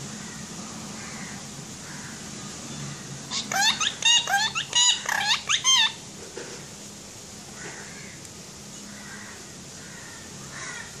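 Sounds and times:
parakeet calling: 3.3s - 6.0s.

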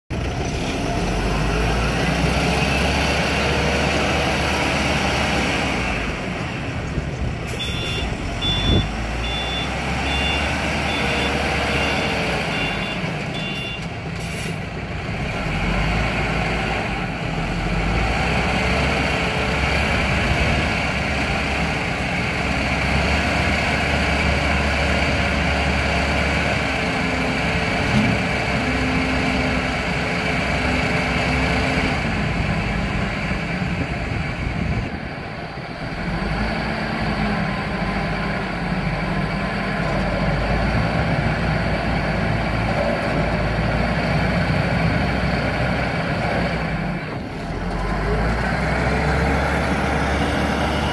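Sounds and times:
diesel engine revving: 0.1s - 50.9s
reversing alarm beeping: 7.5s - 13.9s.

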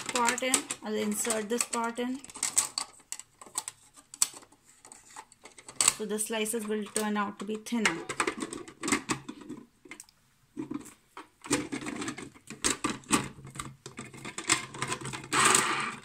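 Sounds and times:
plastic scrape: 0.0s - 6.0s, 10.6s - 16.0s
plastic parts clicking and knocking: 0.0s - 16.0s.

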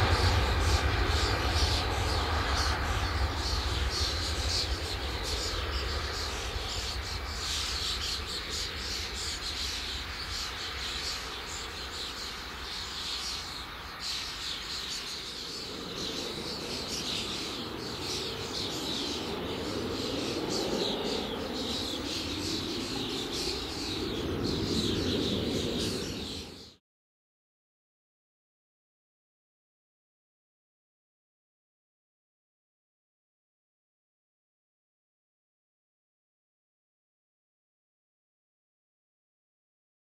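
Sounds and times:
low rumble: 0.0s - 9.8s
birds and insects chirping: 0.0s - 26.8s
distant jet engines: 0.0s - 26.8s.

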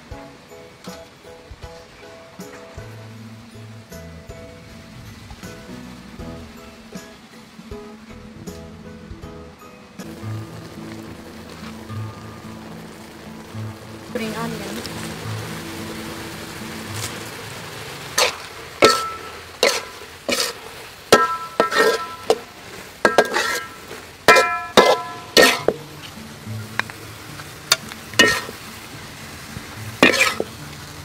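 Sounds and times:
quiet background music: 0.0s - 31.0s
metal spatula scraping a pan: 18.1s - 26.1s, 27.7s - 28.6s, 30.0s - 30.6s.

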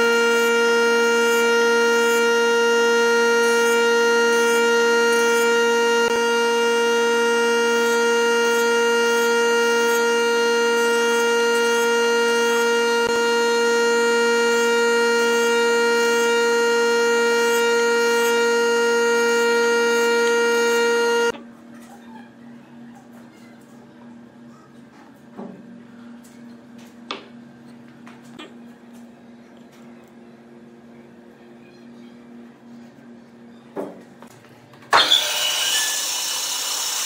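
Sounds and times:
jointer cutterhead whine: 0.0s - 21.4s, 34.9s - 37.0s.

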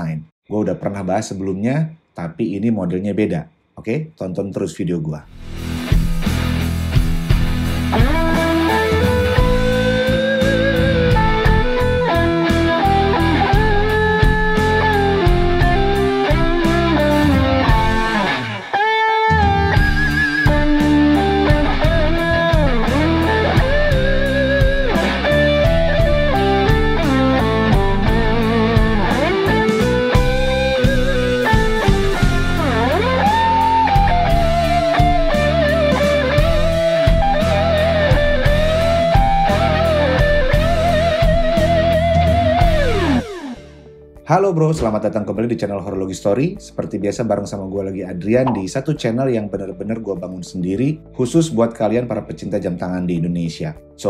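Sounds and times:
bass line: 5.3s - 18.5s, 19.3s - 43.4s, 48.4s - 48.8s
steady drum beat: 5.4s - 18.2s, 19.8s - 39.6s
electric guitar lead melody: 5.7s - 44.2s.

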